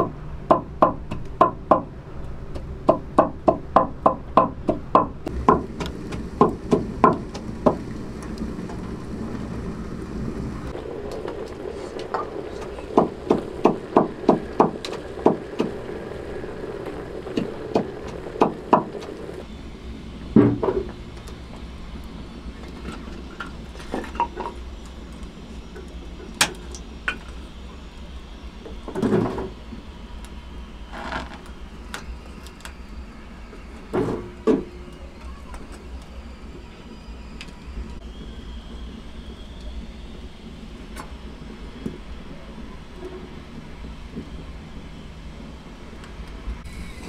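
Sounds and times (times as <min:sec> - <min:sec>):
sharp clicks and knocks: 0:00.0 - 0:08.9
stove fire rumbling: 0:00.0 - 0:47.0.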